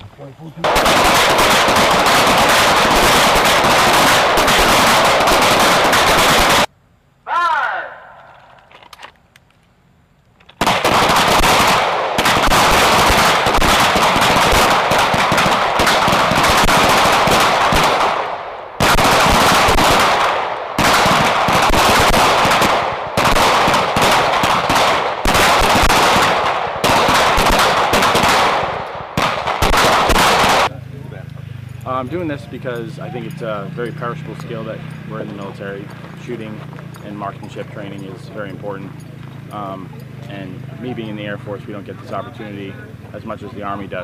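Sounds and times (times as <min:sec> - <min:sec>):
pistols firing: 0:00.6 - 0:06.7, 0:10.6 - 0:30.7.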